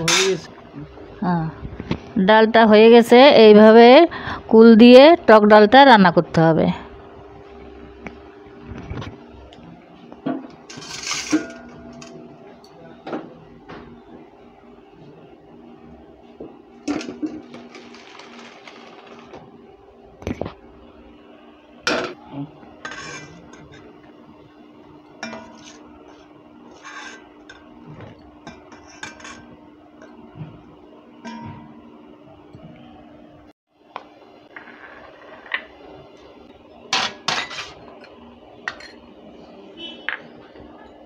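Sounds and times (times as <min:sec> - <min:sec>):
metal cookware clattering: 0:10.7 - 0:12.2, 0:25.2 - 0:25.8, 0:36.9 - 0:39.0.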